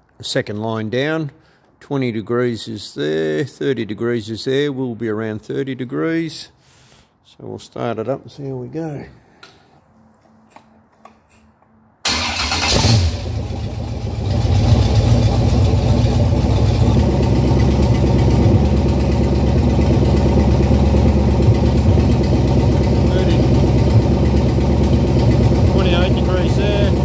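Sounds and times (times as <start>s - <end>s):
car engine starting and running: 12.0s - 27.0s.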